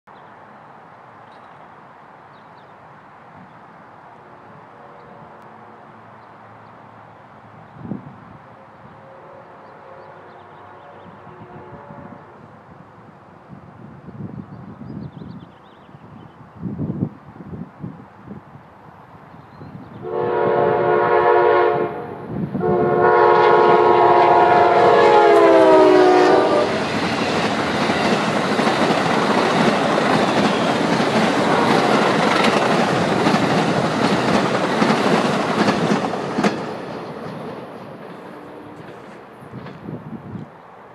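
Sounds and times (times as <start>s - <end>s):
train horn blasts: 4.6s - 6.0s, 8.6s - 12.5s, 20.0s - 27.0s, 38.2s - 39.1s
train wheels clattering on rails: 26.6s - 40.0s.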